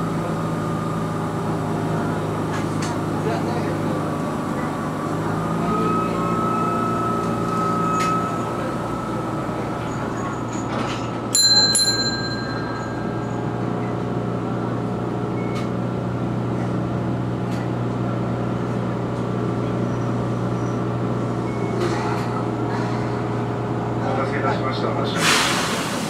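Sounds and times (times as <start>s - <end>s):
tram hum: 0.0s - 26.0s
bright short bell ring: 11.4s - 13.4s.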